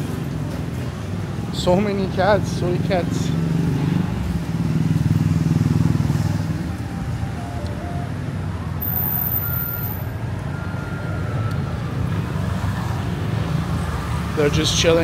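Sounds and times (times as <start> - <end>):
passing cars and motorbikes: 0.0 - 15.0
vehicle engine running close by: 2.5 - 10.0.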